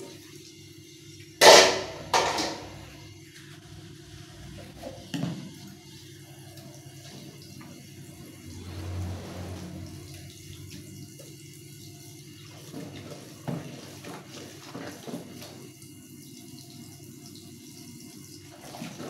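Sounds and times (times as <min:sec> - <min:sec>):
tap water running into sink: 0:00.0 - 0:03.0, 0:09.5 - 0:19.0.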